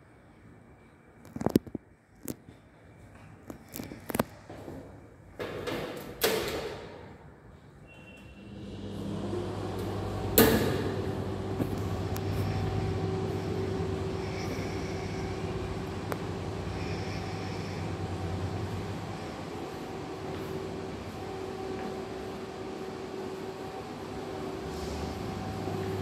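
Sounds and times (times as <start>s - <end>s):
low machine hum: 7.2s - 26.0s.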